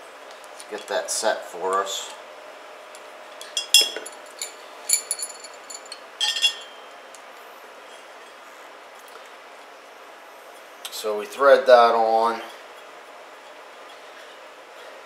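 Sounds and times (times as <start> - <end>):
metal tool clinking on wheel rim: 3.4 - 6.9.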